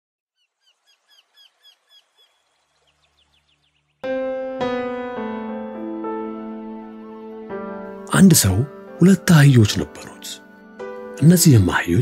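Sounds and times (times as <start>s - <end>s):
faint bird chirping: 0.3s - 4.0s
keyboard chord intro music: 4.0s - 12.0s.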